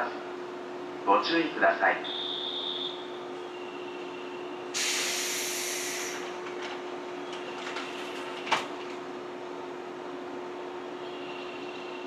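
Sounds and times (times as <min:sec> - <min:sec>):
train humming: 0:02.8 - 0:12.0
compressed air hiss: 0:04.8 - 0:06.3.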